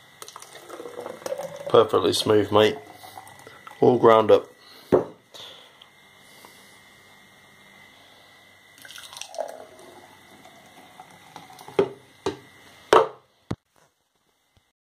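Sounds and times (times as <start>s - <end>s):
thick smoothie pouring into jug: 0.2s - 4.0s, 8.8s - 12.0s.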